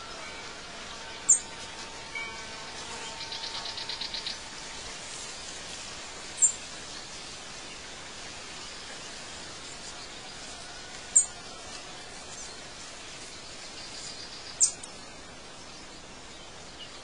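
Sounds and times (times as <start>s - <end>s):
bird trill: 0.0s - 4.5s
birds chirping: 0.0s - 17.0s
steady hiss: 0.0s - 17.0s.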